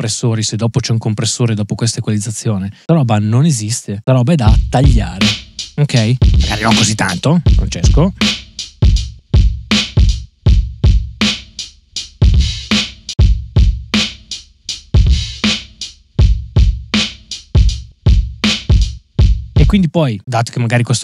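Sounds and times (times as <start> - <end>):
drum groove of kick and snare: 4.5 - 19.9.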